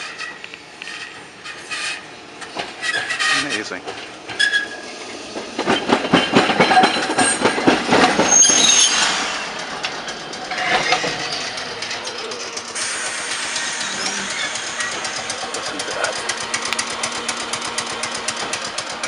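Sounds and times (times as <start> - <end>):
high wheel squeal: 0.0 - 2.1, 2.8 - 3.6, 4.4 - 5.2, 6.6 - 16.2
streetcar wheels clacking on rails: 0.0 - 19.0.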